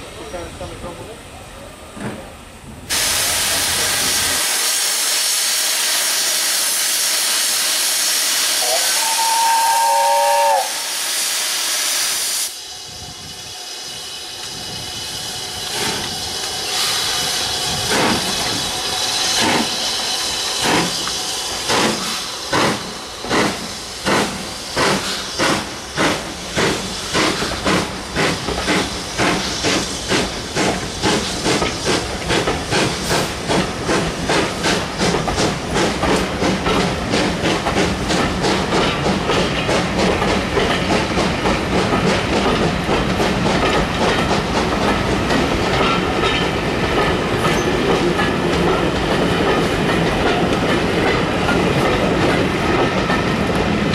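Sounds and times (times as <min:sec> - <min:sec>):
loud hiss of steam: 0:00.0 - 0:53.9
steam locomotive exhaust chuffs: 0:02.9 - 0:53.9
steam whistle: 0:04.4 - 0:12.6.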